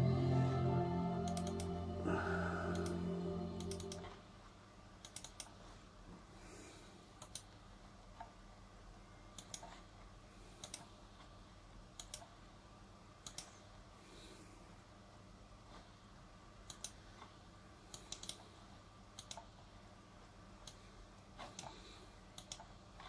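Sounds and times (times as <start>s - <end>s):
computer startup chord: 0.0s - 4.3s
computer mouse buttons clicking: 5.0s - 5.6s, 7.2s - 7.5s, 9.3s - 9.8s, 10.6s - 11.0s, 11.9s - 12.4s, 13.2s - 13.6s, 16.7s - 17.0s, 17.9s - 18.5s, 19.2s - 19.5s, 21.4s - 23.0s.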